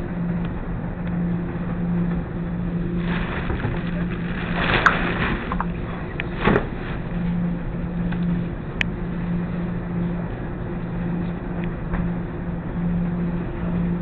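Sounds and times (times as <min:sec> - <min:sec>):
washers and dryers running: 0:00.0 - 0:14.0.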